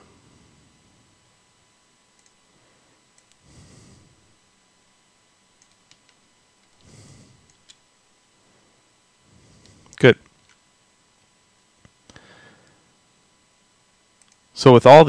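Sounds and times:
computer mouse clicks: 0:02.2 - 0:02.4, 0:03.1 - 0:03.4, 0:05.6 - 0:06.8, 0:07.4 - 0:07.8, 0:14.2 - 0:14.4.

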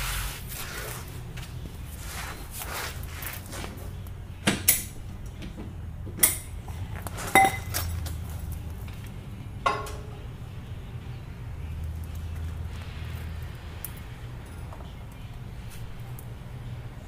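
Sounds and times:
metal pipe clanking on muffler: 0:07.2 - 0:08.2, 0:09.6 - 0:10.3.

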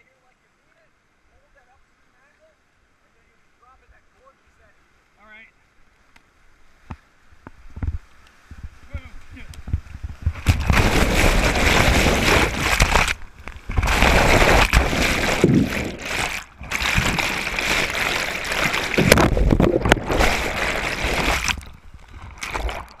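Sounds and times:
whitewater rushing and splashing: 0:10.4 - 0:23.0.

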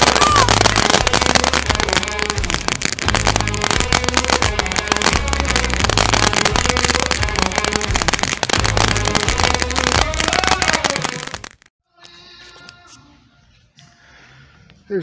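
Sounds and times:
firework spraying and crackling: 0:00.0 - 0:11.7.

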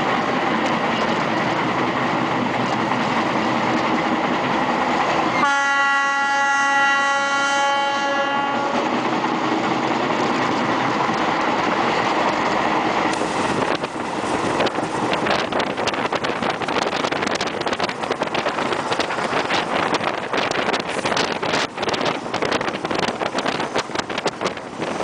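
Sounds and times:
moving train running noise: 0:00.0 - 0:25.0
wind buffeting microphone: 0:00.0 - 0:25.0
locomotive horn blast: 0:05.3 - 0:09.0.

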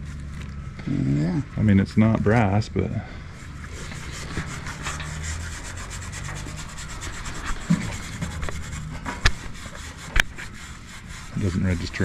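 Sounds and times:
wire brush scrubbing metal: 0:03.2 - 0:12.0.

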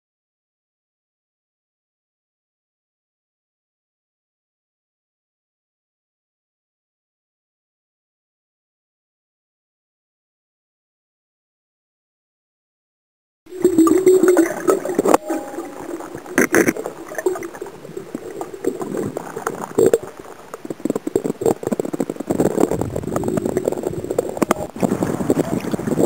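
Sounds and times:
water gurgling and sloshing: 0:13.5 - 0:26.0.

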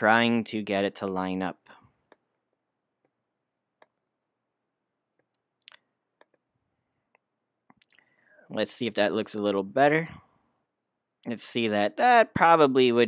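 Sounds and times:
computer mouse clicks: 0:05.2 - 0:06.5.

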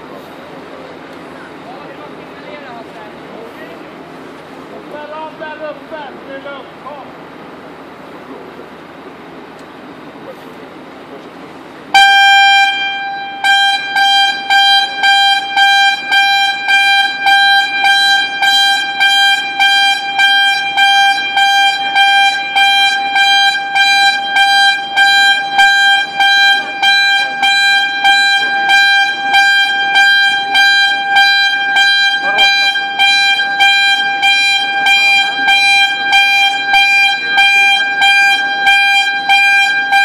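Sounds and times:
pulsing warning alarm horn: 0:11.9 - 0:40.0.

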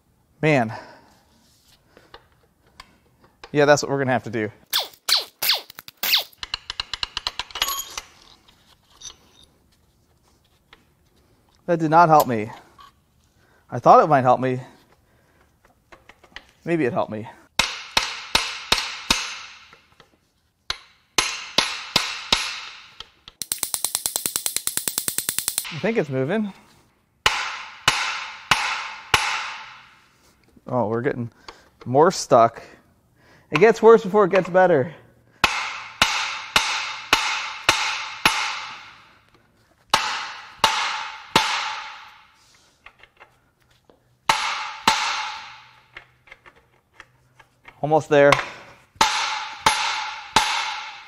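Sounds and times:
hammer striking metal: 0:17.6 - 0:19.8, 0:20.7 - 0:26.0, 0:27.2 - 0:30.0, 0:35.4 - 0:39.2, 0:39.9 - 0:42.4, 0:44.3 - 0:45.9, 0:48.3 - 0:51.0
ratchet wrench clicking: 0:23.4 - 0:25.7.

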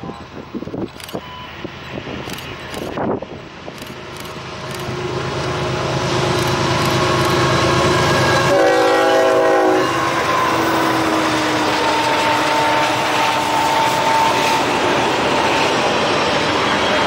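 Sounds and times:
freight train passing: 0:00.0 - 0:17.0
train air horn blast: 0:07.0 - 0:15.8.

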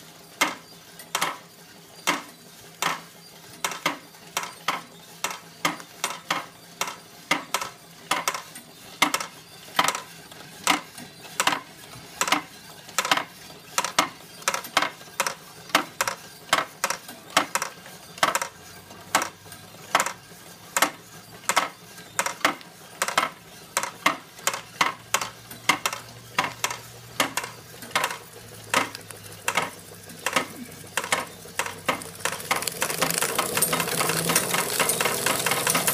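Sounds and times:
toy steam engine hissing and rattling: 0:00.0 - 0:35.9
tin toys clicking and clinking: 0:23.8 - 0:35.9.

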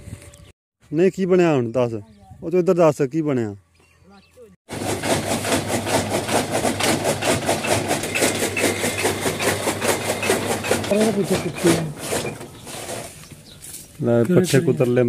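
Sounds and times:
machine hum: 0:04.7 - 0:13.4
chaff cutter blades chopping: 0:04.7 - 0:14.4.

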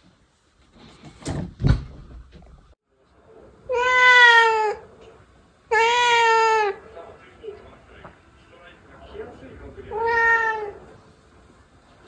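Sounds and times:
cat meowing: 0:03.7 - 0:04.8, 0:05.7 - 0:06.8, 0:09.9 - 0:10.8.

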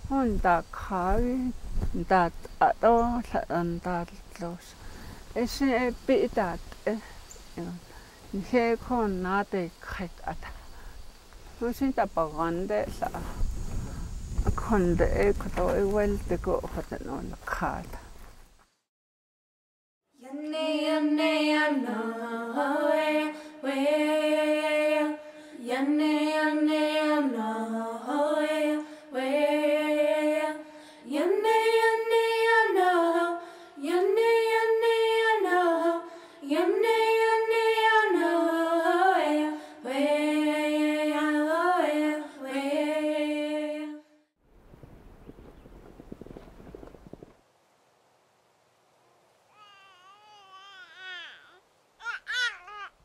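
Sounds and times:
woman singing unaccompanied: 0:00.0 - 0:10.7, 0:11.6 - 0:13.4, 0:14.5 - 0:18.0, 0:20.1 - 0:44.1.

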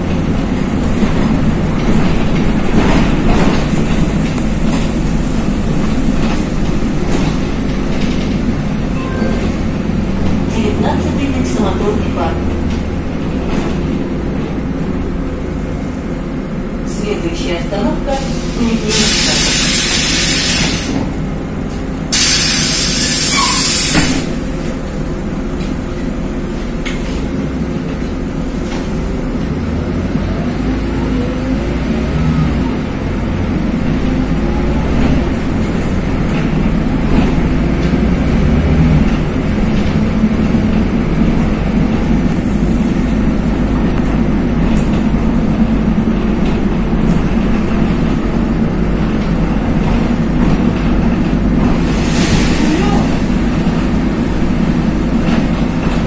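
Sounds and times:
bus engine and road rumble: 0:00.0 - 0:56.0
compressed air hiss: 0:18.2 - 0:21.0, 0:22.1 - 0:24.3.

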